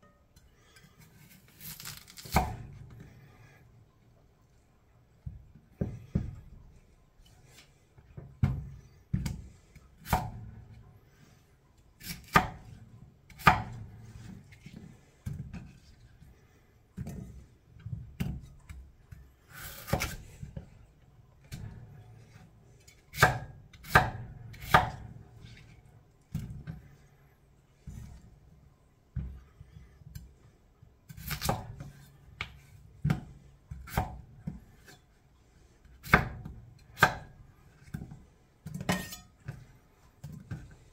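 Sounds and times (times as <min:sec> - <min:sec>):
knife chopping potatoes: 0:01.2 - 0:02.8, 0:08.2 - 0:10.6, 0:12.0 - 0:15.8, 0:19.5 - 0:20.7, 0:23.1 - 0:25.5, 0:31.1 - 0:35.0, 0:35.8 - 0:38.0, 0:38.6 - 0:39.6.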